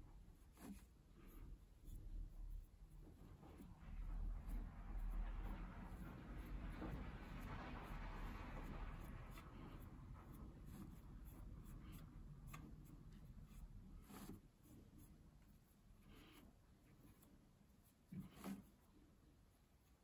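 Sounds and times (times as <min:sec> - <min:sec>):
fingertips rubbing wood: 0:00.3 - 0:19.2.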